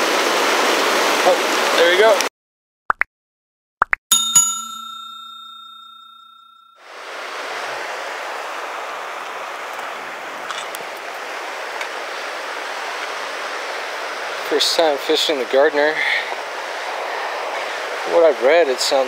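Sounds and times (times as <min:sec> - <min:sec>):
rushing mountain river: 0:00.0 - 0:02.2, 0:06.9 - 0:19.0
bell-like chime: 0:04.1 - 0:06.9.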